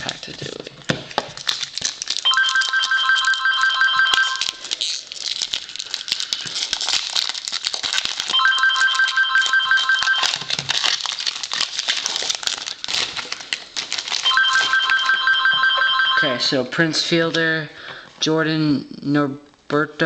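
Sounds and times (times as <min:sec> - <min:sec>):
foil wrapper crinkling: 0:00.0 - 0:15.5
telephone ringing: 0:02.3 - 0:04.5, 0:08.3 - 0:10.5, 0:14.2 - 0:16.5.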